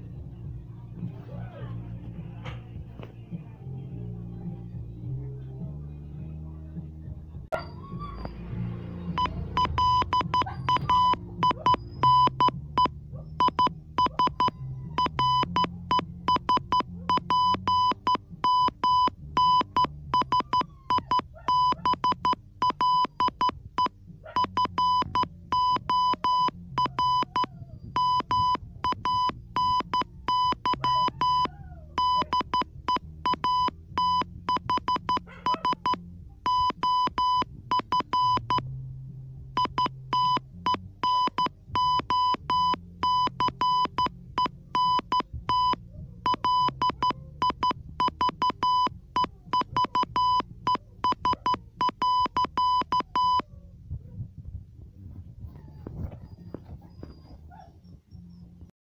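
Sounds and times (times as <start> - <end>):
morse code beeps: 9.1 - 38.6, 39.6 - 53.4.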